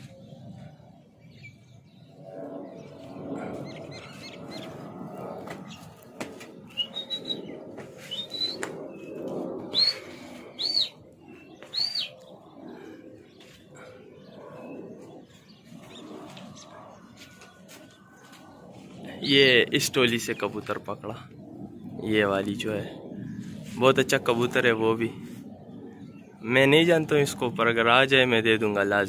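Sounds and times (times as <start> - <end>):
loud rising and falling whistles: 6.6 - 12.3.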